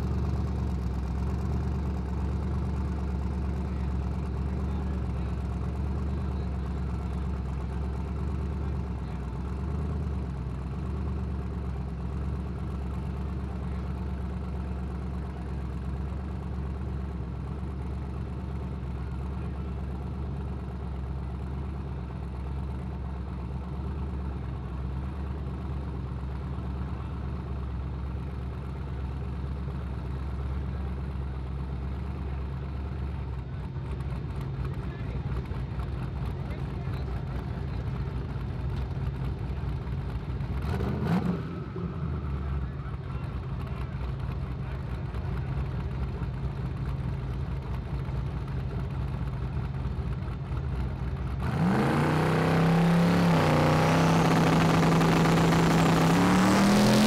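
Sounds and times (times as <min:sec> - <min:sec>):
truck engine idling: 0:00.0 - 0:40.7, 0:41.6 - 0:57.0.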